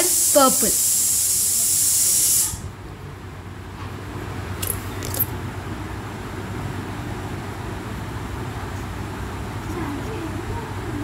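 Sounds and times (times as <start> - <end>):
loud steady hiss: 0.0 - 2.8.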